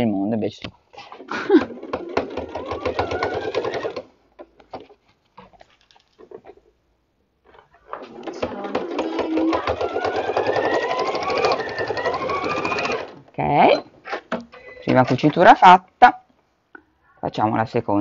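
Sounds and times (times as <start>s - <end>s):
sewing machine stitching: 1.4s - 4.1s, 7.8s - 13.2s.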